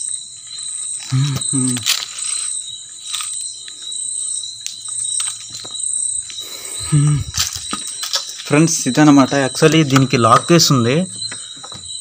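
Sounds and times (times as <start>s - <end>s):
footsteps on gritty concrete: 7.2s - 10.5s.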